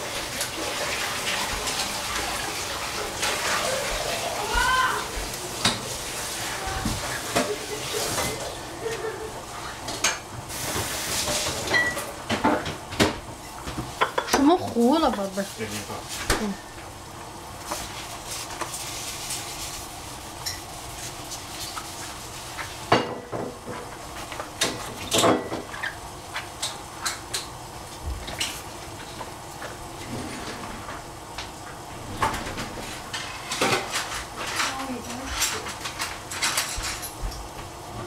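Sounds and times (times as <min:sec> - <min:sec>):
metal pots and dishes clinking: 0:11.3 - 0:12.8, 0:24.6 - 0:25.7.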